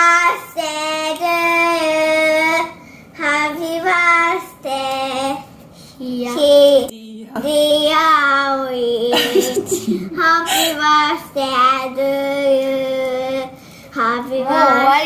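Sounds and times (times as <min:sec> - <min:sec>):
child singing into a microphone: 0:00.0 - 0:09.3, 0:10.2 - 0:15.0.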